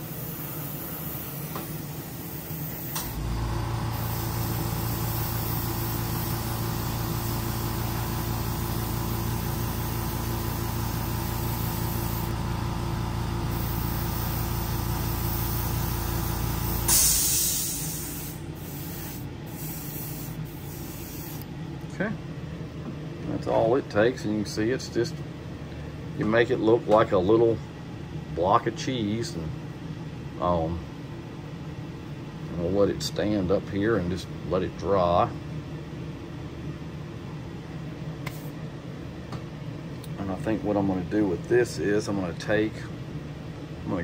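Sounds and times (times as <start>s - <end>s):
airbrush spraying: 0.0s - 3.0s, 3.9s - 12.4s, 13.5s - 21.5s, 38.3s - 38.6s
hiss of released air: 0.0s - 3.2s, 3.8s - 12.4s, 13.5s - 21.5s, 38.2s - 38.6s
air compressor humming: 0.0s - 23.4s
exhaust fan running: 0.0s - 44.0s.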